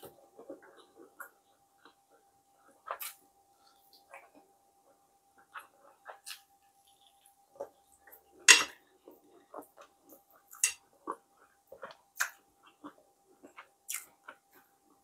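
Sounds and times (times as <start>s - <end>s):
chewing and lip smacks: 11.8s - 14.5s.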